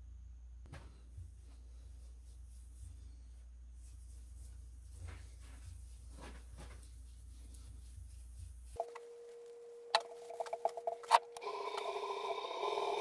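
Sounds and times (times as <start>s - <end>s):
cloth rubbing: 2.0s - 9.5s
electric motor whine: 11.3s - 13.0s
wood lathe motor hum: 11.4s - 13.0s.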